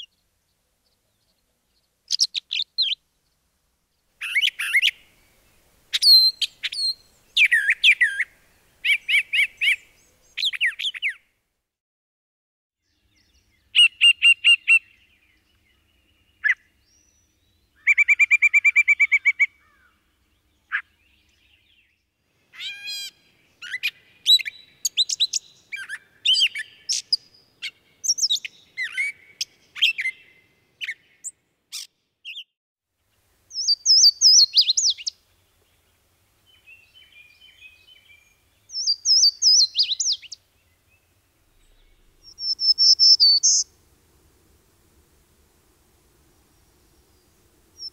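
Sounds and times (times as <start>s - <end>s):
bird jumbled squeaky song: 2.1s - 3.0s, 4.2s - 5.0s, 5.9s - 11.2s, 22.6s - 32.5s, 33.5s - 35.2s, 36.5s - 40.4s, 41.5s - 43.7s.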